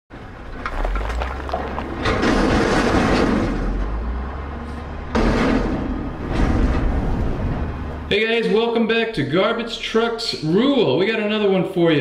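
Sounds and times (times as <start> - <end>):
heavy truck engine rumbling: 0.2 - 8.3.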